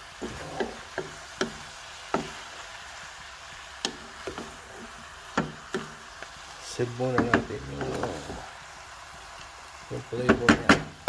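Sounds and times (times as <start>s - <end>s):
wooden spatula scraping a pot: 0.1s - 2.5s, 3.9s - 6.0s, 7.1s - 8.6s.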